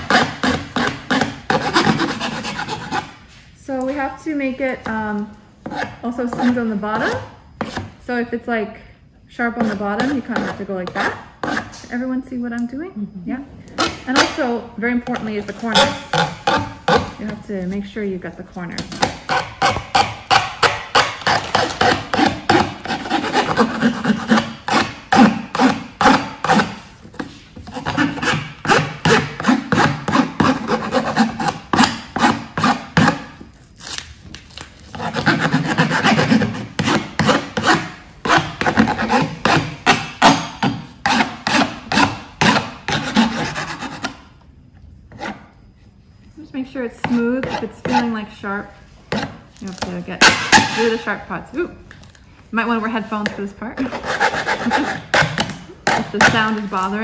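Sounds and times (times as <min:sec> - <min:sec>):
metal file rasping on copper: 0:00.0 - 0:03.1, 0:19.1 - 0:33.3, 0:34.9 - 0:44.2, 0:53.8 - 0:55.3.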